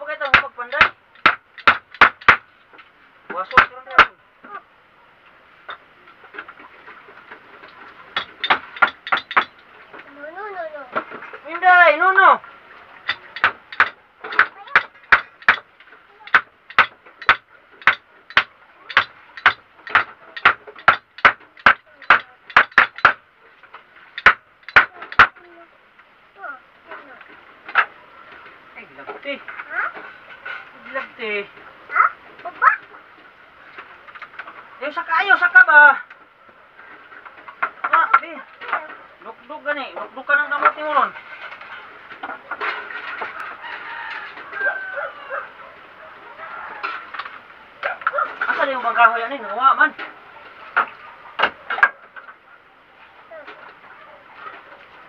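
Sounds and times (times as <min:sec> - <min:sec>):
hammer striking wood: 0:00.2 - 0:02.5, 0:03.4 - 0:04.2, 0:08.2 - 0:09.6, 0:13.1 - 0:15.7, 0:16.3 - 0:23.2, 0:24.2 - 0:25.3.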